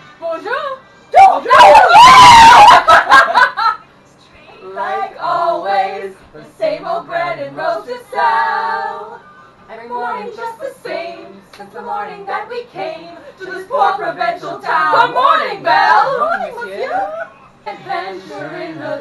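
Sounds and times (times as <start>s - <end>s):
group of voices singing: 4.6s - 19.0s.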